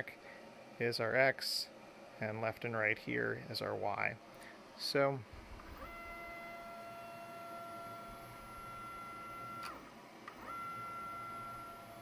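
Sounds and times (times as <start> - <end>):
stepper motor whining: 5.3 - 12.0.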